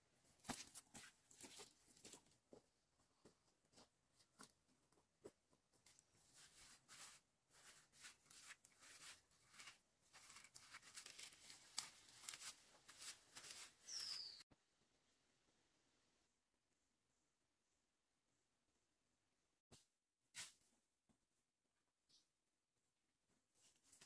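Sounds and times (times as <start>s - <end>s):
plant stems rustling and tearing: 7.6s - 14.2s.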